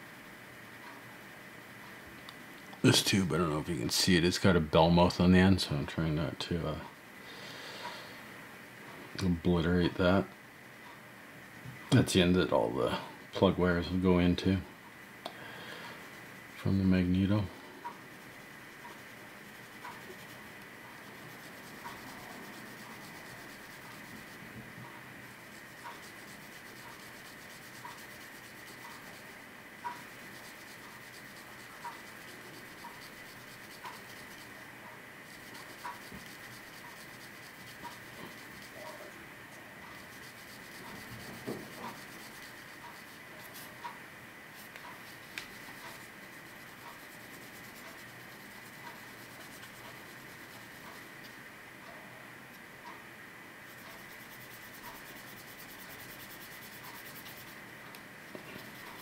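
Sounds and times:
faint regular ticking: 15.2s - 39.1s, 39.8s - 59.0s
sandpaper scratching: 21.0s - 24.4s, 25.3s - 29.4s, 30.0s - 34.5s, 35.3s - 38.9s, 40.0s - 43.7s, 44.6s - 51.0s, 53.7s - 57.6s.

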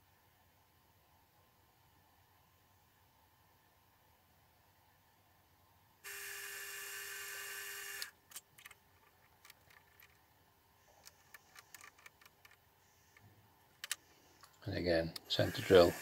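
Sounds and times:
mill spindle motor whine: 6.1s - 8.1s, 15.2s - 16.0s.

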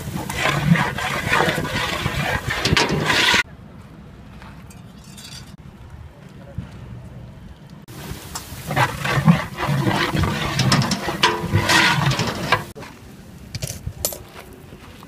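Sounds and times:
liquid sizzling in hot oil: 7.9s - 12.8s.

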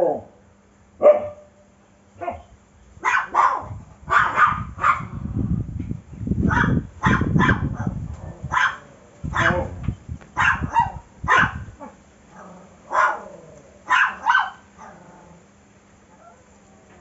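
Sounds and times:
dog barking: 1.0s - 1.5s, 2.2s - 5.2s, 6.5s - 9.8s, 10.4s - 12.0s, 12.9s - 15.0s
low rumbling noise: 3.6s - 13.9s.

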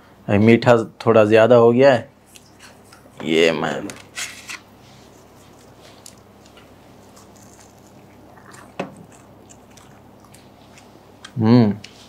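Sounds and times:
quiet chewing: 4.9s - 12.0s
pastry crunch: 5.1s - 12.0s.

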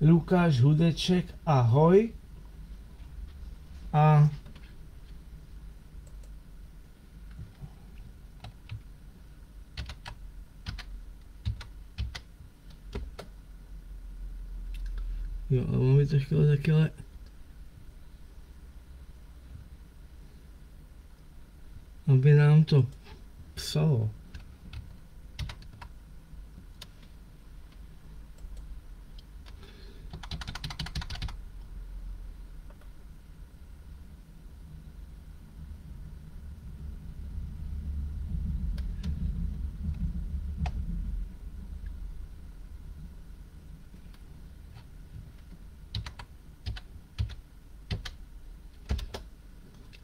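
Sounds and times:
keyboard keys clicking: 9.8s - 12.3s, 24.3s - 25.9s, 29.4s - 31.4s, 45.9s - 48.2s, 48.8s - 49.3s.

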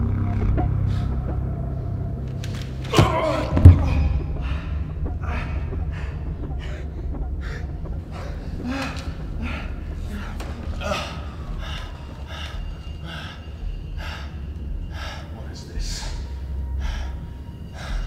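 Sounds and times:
low rumbling drone: 0.0s - 18.0s
heavy thud: 2.9s - 4.6s.

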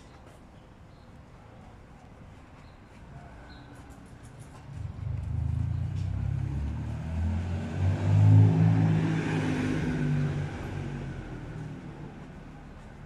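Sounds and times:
vehicle engine passing: 4.6s - 13.0s.

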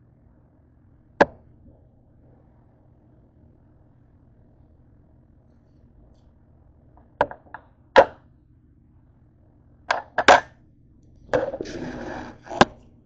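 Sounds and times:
scraping and rubbing: 11.3s - 12.8s.

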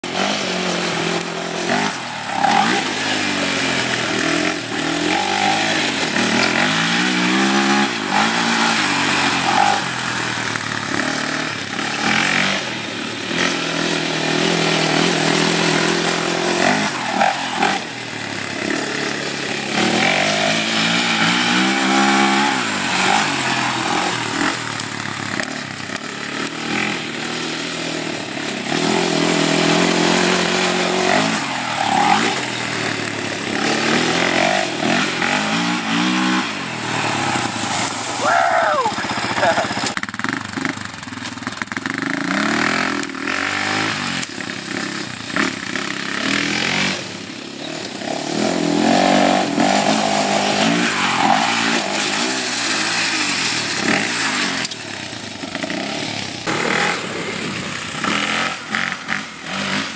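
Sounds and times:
quad engine revving: 0.0s - 59.9s.

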